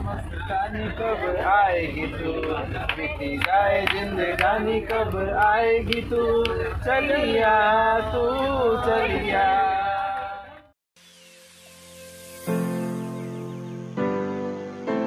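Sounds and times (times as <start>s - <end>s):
low steady rumble: 0.0s - 10.0s
male and female voices singing: 0.4s - 10.7s.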